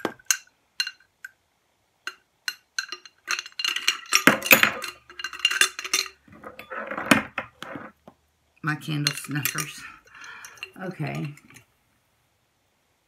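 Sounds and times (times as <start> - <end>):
metal clinking against glass jar: 0.0 - 1.4, 2.1 - 7.8, 8.9 - 11.7.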